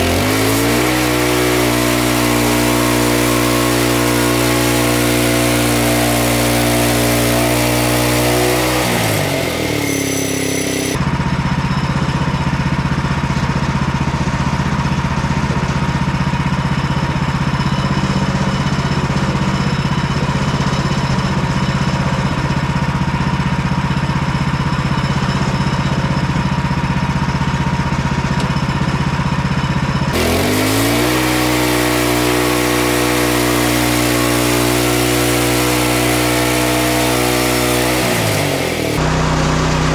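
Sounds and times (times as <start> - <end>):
sawmill gasoline engine: 0.0 - 39.9.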